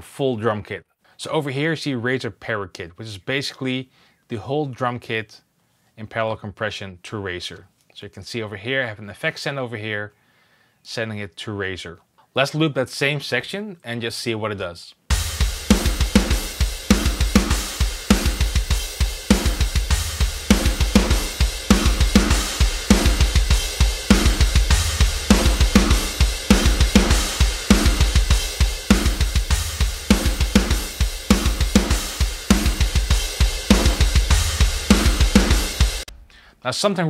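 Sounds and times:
snare drum beat: 15.1 - 36.2
bass drum strokes: 15.1 - 36.3
cymbals: 15.1 - 36.3.

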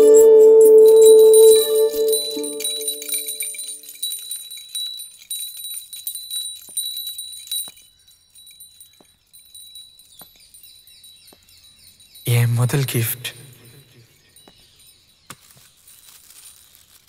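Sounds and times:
music cue: 0.0 - 3.9
small metal bells jingling: 0.0 - 17.0.

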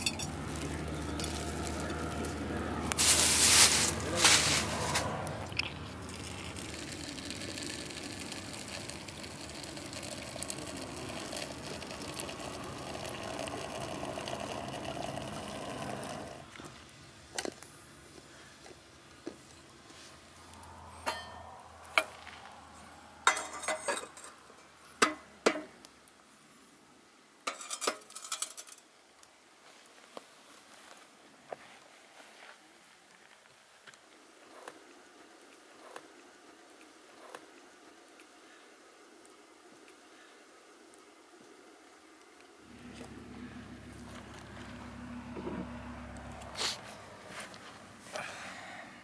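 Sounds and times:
glass and metal clinks: 0.0 - 0.4, 21.0 - 21.5, 23.3 - 24.3
hot water pouring into teapot: 4.5 - 16.6.

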